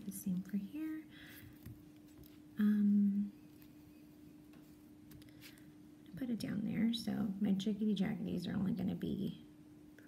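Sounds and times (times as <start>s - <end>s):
faint background hum: 0.0s - 10.0s
woman humming: 2.6s - 3.4s.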